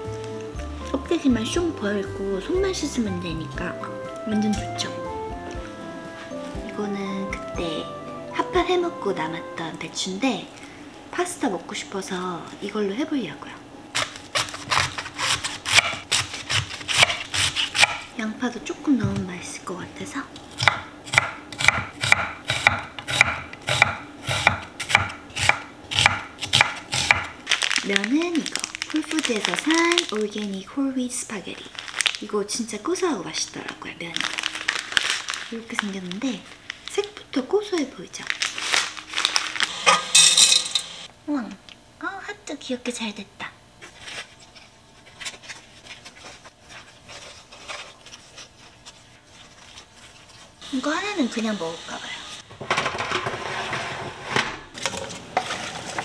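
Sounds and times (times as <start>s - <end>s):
knife chopping on cutting board: 14.0s - 18.1s, 20.5s - 27.3s
kitchen utensils tapping: 39.9s - 41.0s.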